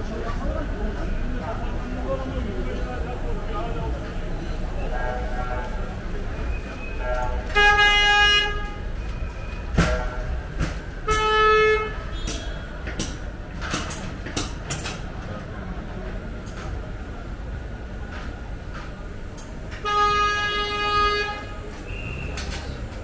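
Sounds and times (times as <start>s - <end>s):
busy shop ambience: 0.0s - 23.0s.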